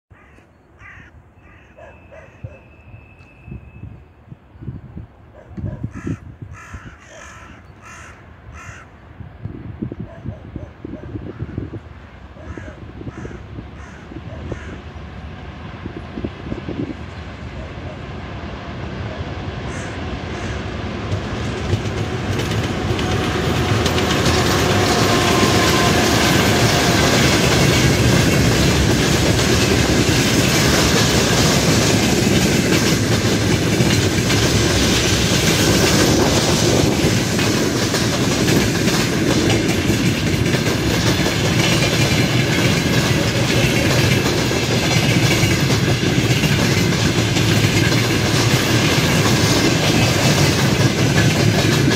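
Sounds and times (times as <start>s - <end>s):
diesel locomotive: 0.1s - 51.9s
train wheels clickety-clack: 12.4s - 51.9s.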